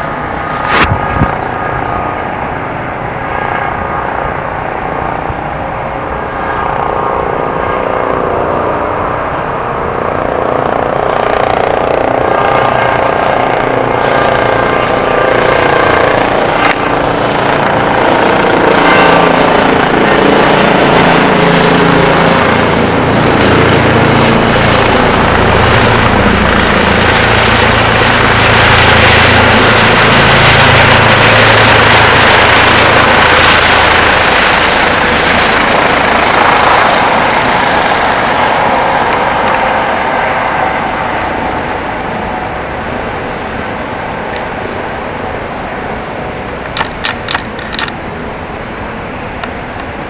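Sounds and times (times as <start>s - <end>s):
helicopter flying past: 0.0s - 50.0s.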